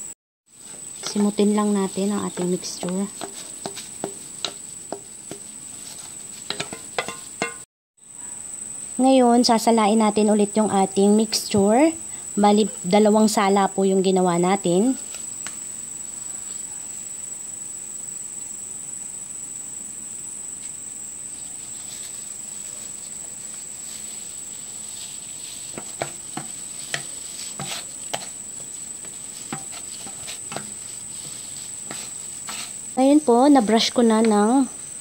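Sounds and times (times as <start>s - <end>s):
metal clinks: 6.5s - 7.6s
batter pouring through strainer: 21.4s - 33.0s.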